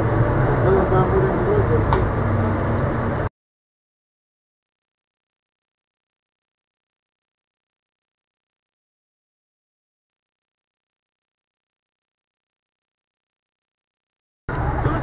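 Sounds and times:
outdoor background noise: 0.0s - 3.3s, 14.5s - 15.0s.

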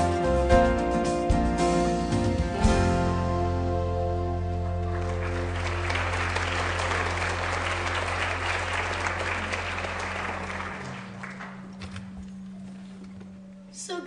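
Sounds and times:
held musical chord: 0.1s - 11.8s
audience applauding: 4.5s - 12.2s.

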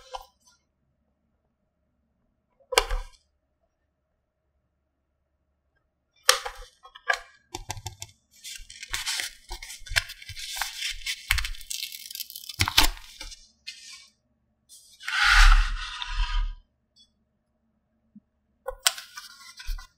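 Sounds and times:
plastic packaging crinkling and tearing: 8.4s - 13.9s
small plastic pieces clicking: 11.6s - 13.0s.

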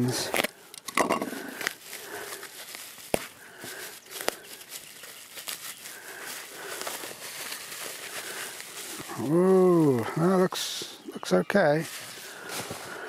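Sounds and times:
bubble wrap crinkling: 0.0s - 10.2s.

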